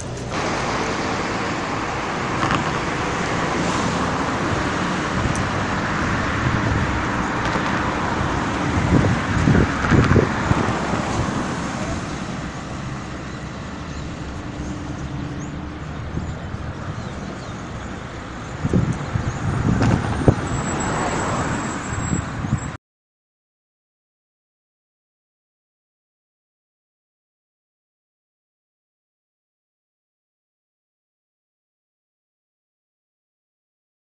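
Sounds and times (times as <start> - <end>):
cars passing on road: 0.0 - 22.8.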